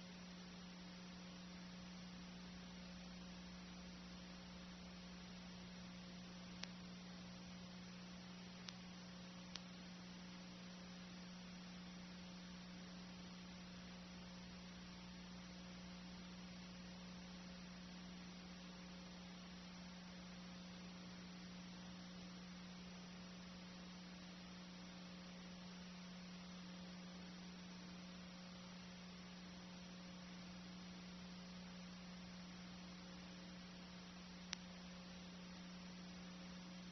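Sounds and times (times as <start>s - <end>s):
faint hiss: 0.0s - 36.9s
low electrical hum: 0.0s - 36.9s
faint clicks: 6.5s - 6.8s, 8.6s - 9.8s, 34.4s - 34.9s.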